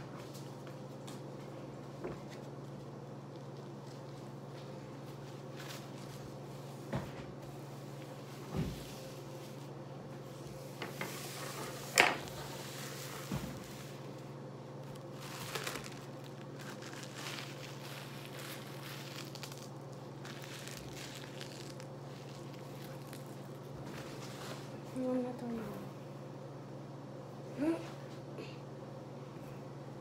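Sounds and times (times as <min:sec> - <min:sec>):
steady low hum: 0:00.0 - 0:30.0
paper crinkling on stone: 0:14.8 - 0:24.6.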